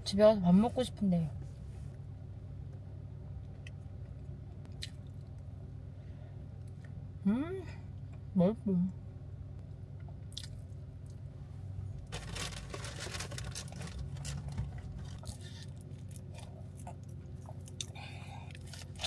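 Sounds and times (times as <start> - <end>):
low steady hum: 0.0 - 19.0
chewing crisp snack: 10.3 - 11.2, 12.2 - 19.0.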